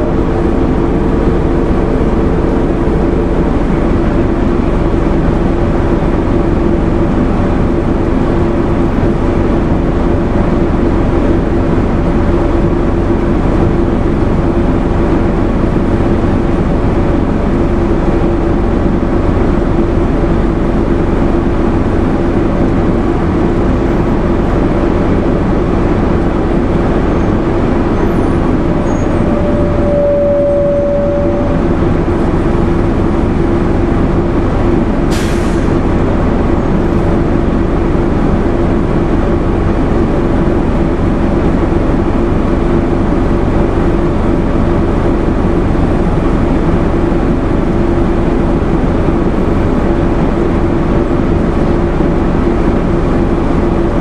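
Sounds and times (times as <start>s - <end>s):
steady high tone: 0.0s - 6.4s, 27.2s - 34.2s
bus diesel engine droning: 0.0s - 54.0s.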